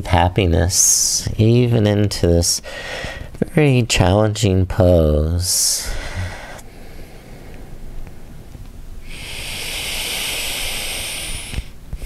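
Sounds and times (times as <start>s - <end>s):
long breath hiss: 2.6s - 3.4s, 5.7s - 8.3s, 9.0s - 12.0s.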